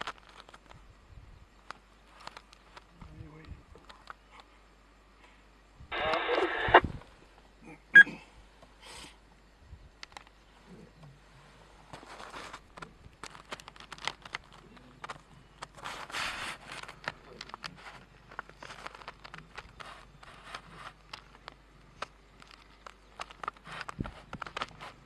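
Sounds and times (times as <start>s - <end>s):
animals rustling through dry grass: 11.3s - 25.0s.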